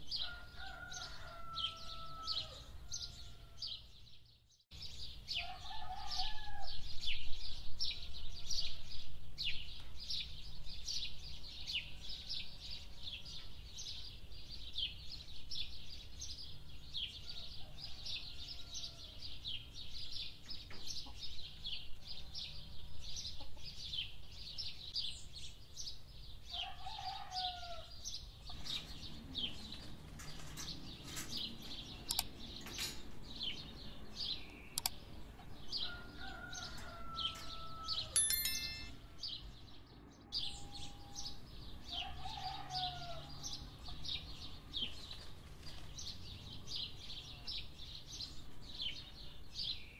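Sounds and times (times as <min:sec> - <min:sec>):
small birds chirping: 0:09.0 - 0:39.5, 0:40.4 - 0:49.9.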